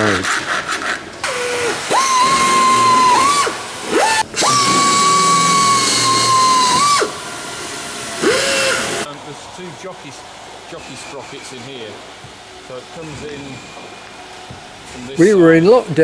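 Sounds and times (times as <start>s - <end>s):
pneumatic air drill whining: 0.0s - 9.1s
exhaust air hiss: 1.2s - 15.7s.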